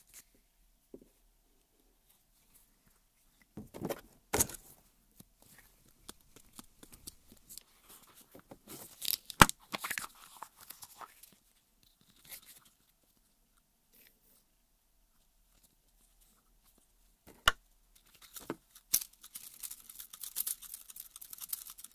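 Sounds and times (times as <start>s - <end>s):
hands handling rubber toys: 2.1s - 13.0s, 16.3s - 21.9s.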